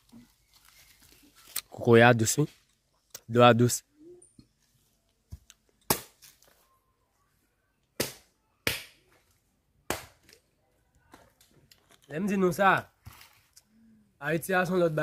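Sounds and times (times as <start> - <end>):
machete chopping coconuts: 5.9 - 6.4, 8.0 - 9.2, 9.9 - 10.4.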